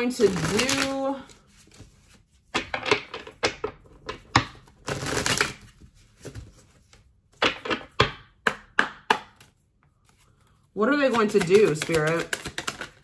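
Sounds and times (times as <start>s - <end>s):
cards being shuffled: 0.0s - 2.6s, 4.4s - 7.7s, 9.3s - 13.0s.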